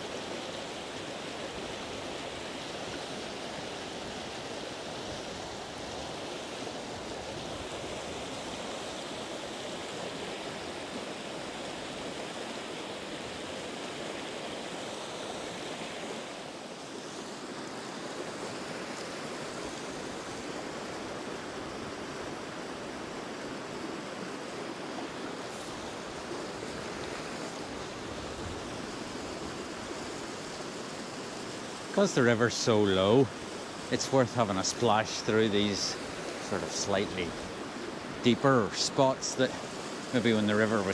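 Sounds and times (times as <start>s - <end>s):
river rushing over rocks: 0.0s - 40.9s.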